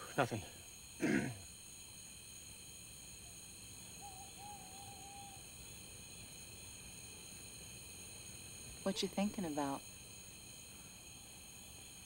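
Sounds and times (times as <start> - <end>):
crickets chirping: 0.0 - 12.0
owl call: 4.0 - 5.4.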